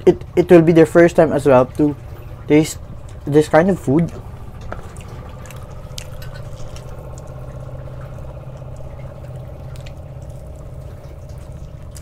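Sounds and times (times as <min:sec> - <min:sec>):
steady low hum: 0:00.0 - 0:12.0
faint clicks of food eating: 0:04.0 - 0:12.0.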